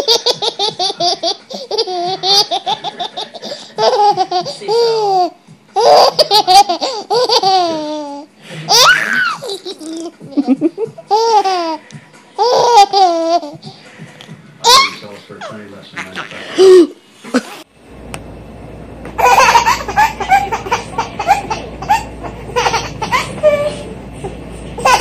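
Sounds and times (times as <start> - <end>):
young child giggling: 5.8 - 11.8.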